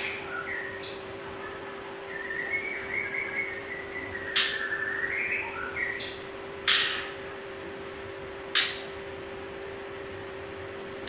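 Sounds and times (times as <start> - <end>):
steady background hum: 0.0 - 11.0
bird whistling thinly: 2.1 - 6.1
bird squawking harshly: 6.7 - 7.2.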